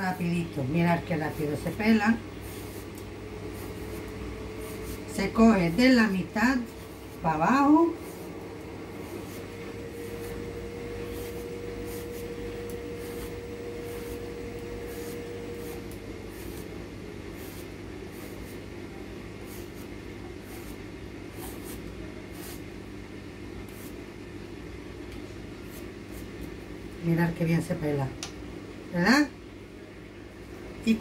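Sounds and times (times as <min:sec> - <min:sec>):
steady hum: 0:00.0 - 0:31.0
vegetable peeler scraping: 0:00.8 - 0:08.3, 0:08.9 - 0:18.7, 0:19.4 - 0:22.6.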